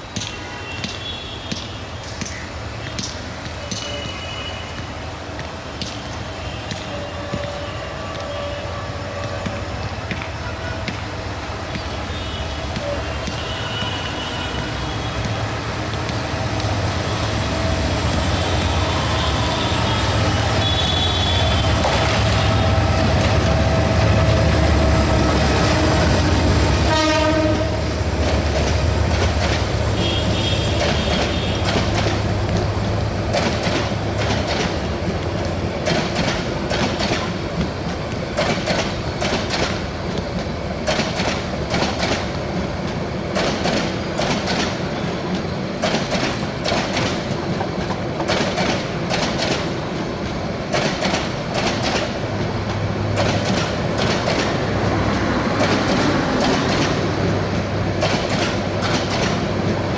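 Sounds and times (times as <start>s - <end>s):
locomotive engine rumbling: 4.8s - 59.9s
train wheels clacking over rail joints: 5.3s - 59.9s
train horn: 6.4s - 10.9s, 12.1s - 15.2s, 18.6s - 23.0s, 26.8s - 27.9s.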